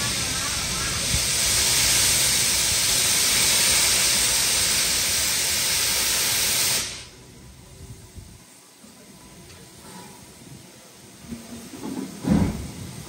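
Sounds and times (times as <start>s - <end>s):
steam locomotive hissing steam: 0.0s - 13.0s.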